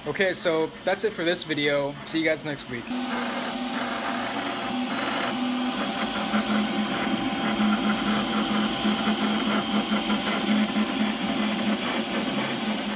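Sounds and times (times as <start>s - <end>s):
stepper motors whining: 2.9s - 12.9s.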